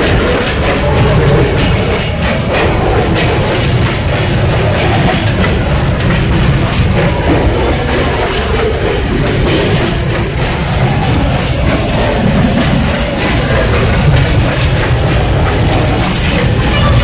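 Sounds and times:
train wheels rumbling on rails: 0:00.0 - 0:17.0
wind buffeting microphone: 0:00.0 - 0:17.0.

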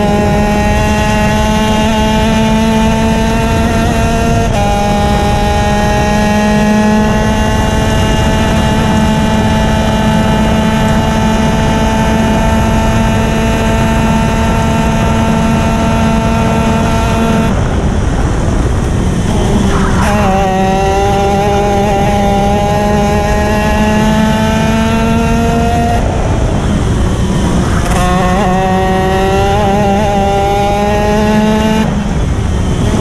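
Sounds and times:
kart engine at high revs: 0:00.0 - 0:33.0
steady rush of noise: 0:14.1 - 0:33.0.

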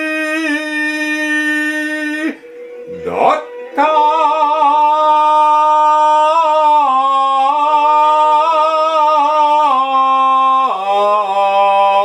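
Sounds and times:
woman chanting long wavering note: 0:00.6 - 0:06.8.

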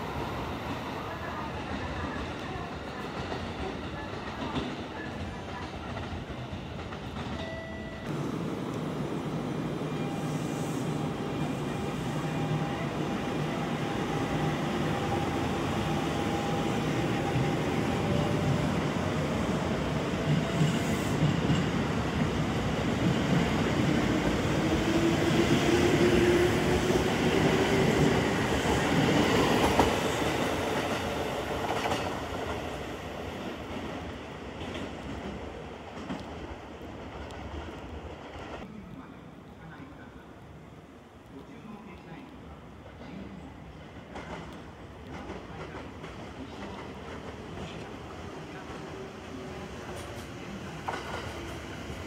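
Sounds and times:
train wheels clattering on rails: 0:01.6 - 0:08.2, 0:20.1 - 0:32.7, 0:49.8 - 0:52.0.

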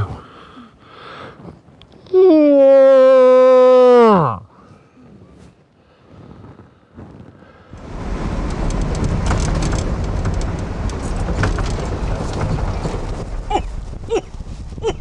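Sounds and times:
vehicle driving on gravel: 0:07.0 - 0:14.8
ticks and rattles: 0:07.8 - 0:15.0.

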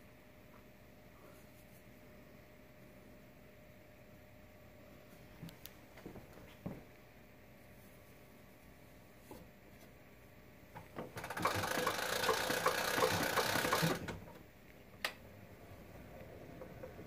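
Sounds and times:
gramophone crank whirring and clicking: 0:10.8 - 0:14.4.

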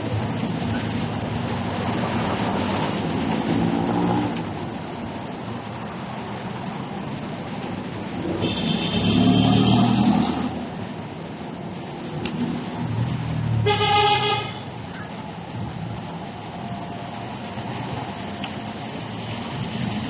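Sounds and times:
vehicles passing: 0:00.0 - 0:20.0
vehicle horn toot: 0:08.4 - 0:10.0.

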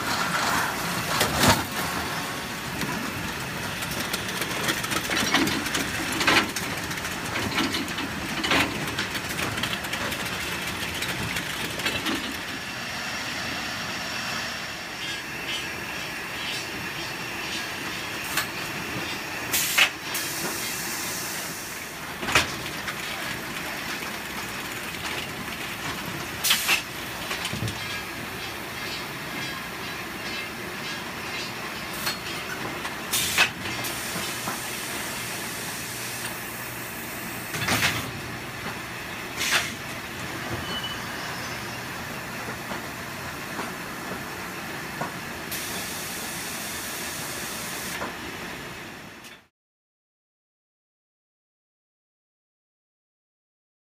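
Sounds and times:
conveyor machinery running: 0:00.0 - 0:49.5
hiss: 0:19.5 - 0:22.0, 0:26.4 - 0:26.9, 0:33.1 - 0:37.5, 0:45.5 - 0:48.0.

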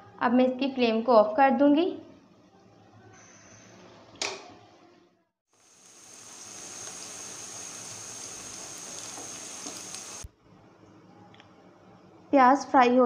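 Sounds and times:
onions sizzling in hot oil: 0:05.5 - 0:10.3.

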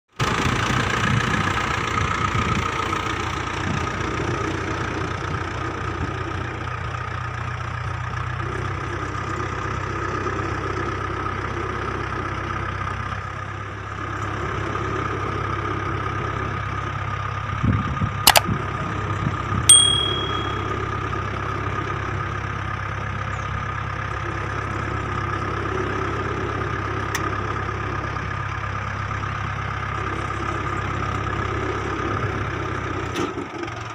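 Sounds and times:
tractor diesel engine running: 0:00.2 - 0:33.9
sharp clicks: 0:18.3 - 0:18.5
brief metallic ring: 0:19.7 - 0:20.9.

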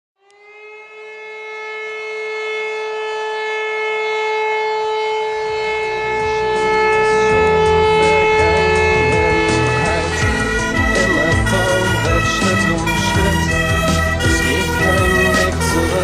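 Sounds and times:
siren wailing: 0:00.2 - 0:16.0
low rumble: 0:05.1 - 0:16.0.

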